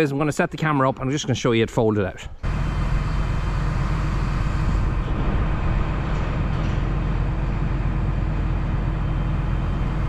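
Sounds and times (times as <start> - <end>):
hydraulics folding booms: 2.4 - 10.0
tractor engine running: 2.4 - 10.0.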